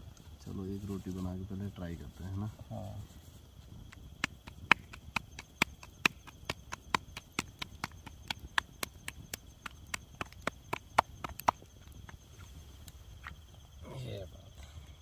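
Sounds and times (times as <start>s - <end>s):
faint insect chirring: 0.0s - 15.0s
dough slapped between palms: 4.2s - 11.6s.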